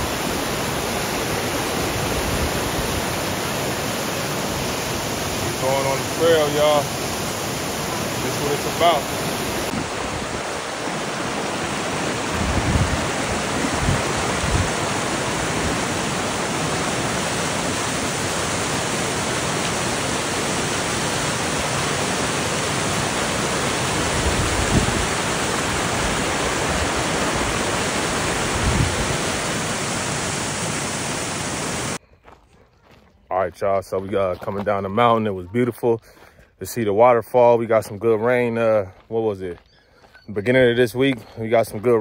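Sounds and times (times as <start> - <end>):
waterfall rushing: 0.0 - 32.0.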